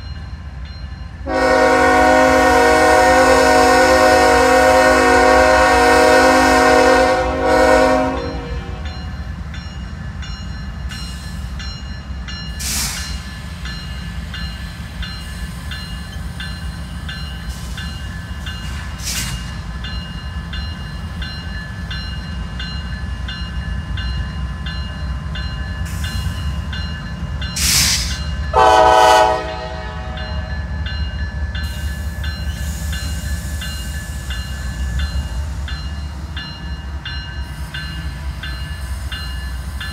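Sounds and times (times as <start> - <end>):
locomotive air horn: 1.2 - 8.8, 28.6 - 30.4
crossing bell dinging: 4.0 - 39.9.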